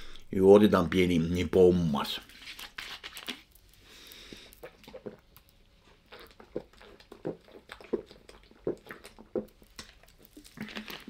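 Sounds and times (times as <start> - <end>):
man gulping a soft drink: 4.1 - 11.0.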